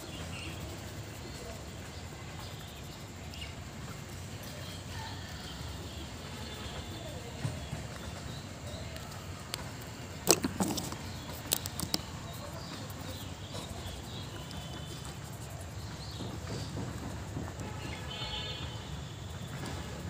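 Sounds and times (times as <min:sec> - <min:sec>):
marker cap clicks: 0:10.2 - 0:12.1.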